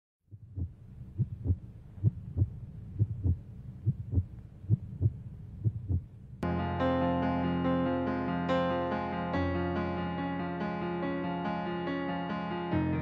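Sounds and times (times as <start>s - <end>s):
heartbeat lub-dub: 0.3s - 6.2s
piano music: 6.4s - 13.0s.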